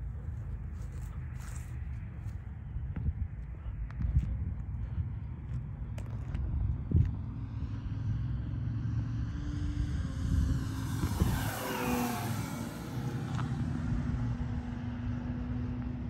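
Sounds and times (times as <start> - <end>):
steady low rumble: 0.0 - 16.0
model airplane engine flyby: 6.6 - 16.0.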